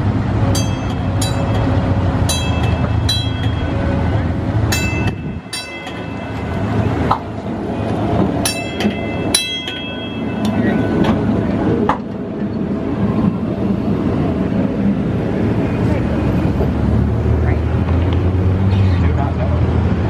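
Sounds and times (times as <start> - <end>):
streetcar rumbling on rails: 0.0 - 20.0
sharp high-pitched ringing: 0.5 - 7.1, 8.4 - 11.3.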